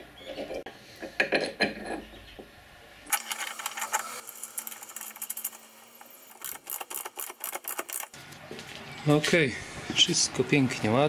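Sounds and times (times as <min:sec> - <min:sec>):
ratchet wrench clicking: 0:06.3 - 0:08.2.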